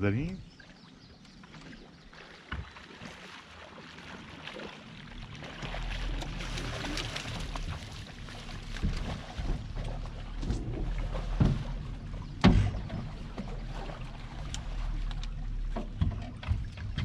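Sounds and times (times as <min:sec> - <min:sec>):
fish splashing in water: 0:00.6 - 0:17.0
low rumble: 0:05.0 - 0:17.0.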